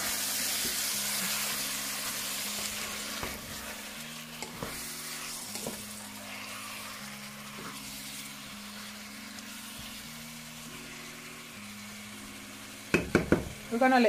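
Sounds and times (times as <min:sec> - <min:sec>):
chicken sizzling in a pan: 0:00.0 - 0:14.0
wooden spatula tapping and scraping: 0:12.9 - 0:13.5.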